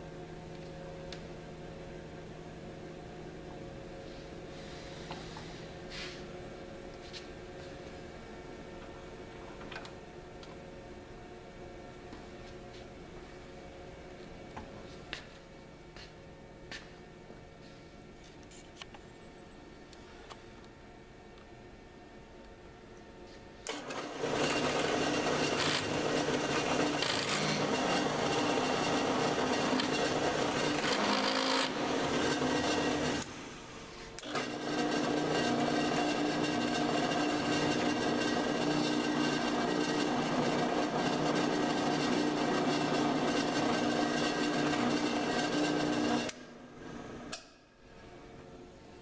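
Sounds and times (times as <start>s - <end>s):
drill press motor hum: 23.6s - 47.4s.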